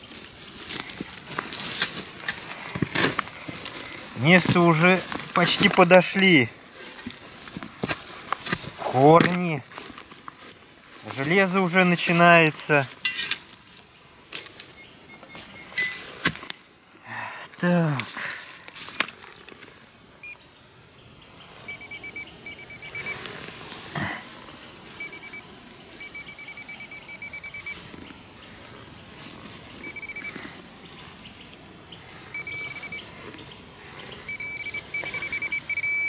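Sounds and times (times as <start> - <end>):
metal detector probe beeping: 14.7 - 16.0, 20.2 - 20.4, 21.6 - 23.2, 25.0 - 27.8, 29.8 - 30.4, 32.3 - 33.1, 34.2 - 36.0.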